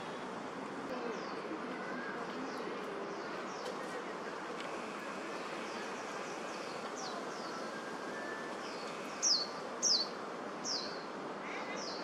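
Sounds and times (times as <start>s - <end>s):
steady background noise: 0.0s - 12.0s
bird chirping: 5.4s - 11.0s.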